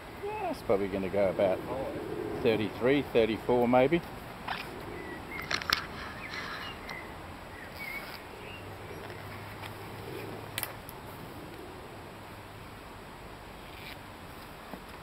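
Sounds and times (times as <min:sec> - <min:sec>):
faint bird chirp: 0:04.5 - 0:10.5.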